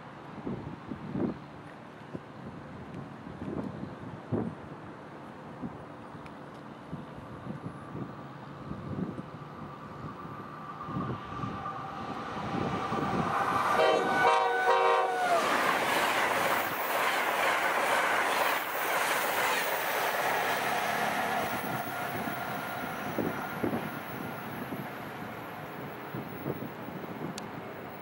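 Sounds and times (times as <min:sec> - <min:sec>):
train rushing by: 0:07.4 - 0:28.0
train horn blast: 0:13.0 - 0:15.5.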